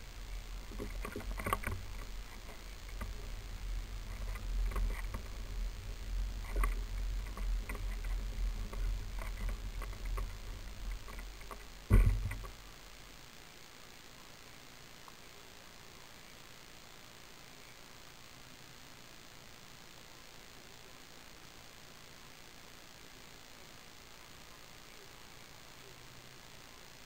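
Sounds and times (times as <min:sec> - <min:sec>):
gear rattling and clicking: 0:00.0 - 0:12.6
kayak rumbling along asphalt: 0:00.0 - 0:12.8
loud thump: 0:11.9 - 0:12.5.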